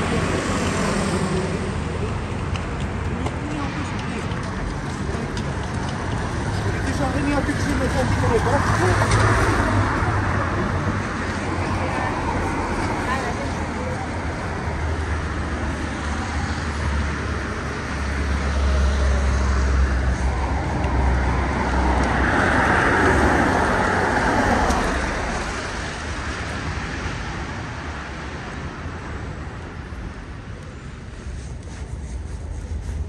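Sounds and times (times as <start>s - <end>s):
traffic on wet street: 0.0s - 33.0s
vehicle passing with tyre hiss: 6.2s - 28.7s, 29.3s - 33.0s.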